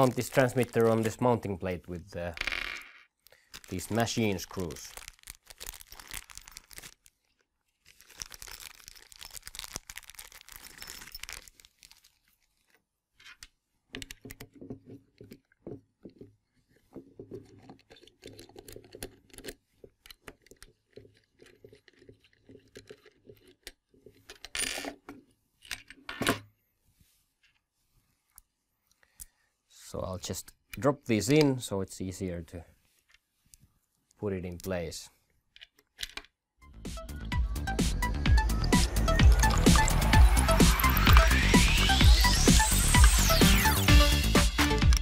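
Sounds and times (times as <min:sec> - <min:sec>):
plastic bag rustling: 0:00.0 - 0:01.4, 0:03.4 - 0:12.8
handling noises: 0:00.0 - 0:01.7, 0:03.2 - 0:28.4
small metal parts clicking: 0:07.9 - 0:11.9.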